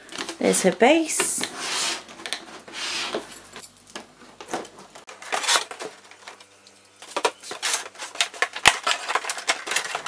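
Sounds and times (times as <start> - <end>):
plastic packaging crackling: 4.5 - 10.0.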